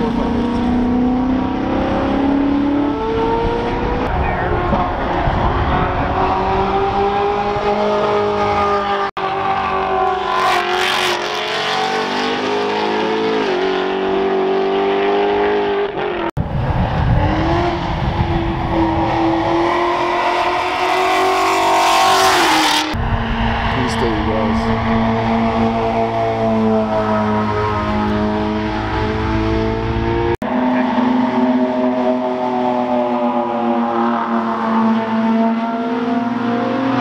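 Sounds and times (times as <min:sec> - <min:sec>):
sports car engines racing: 0:00.0 - 0:37.0.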